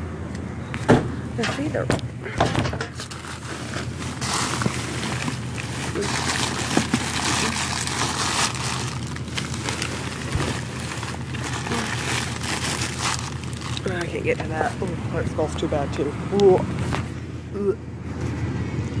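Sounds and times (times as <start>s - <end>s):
trash rustling and clattering: 0.8s - 15.0s.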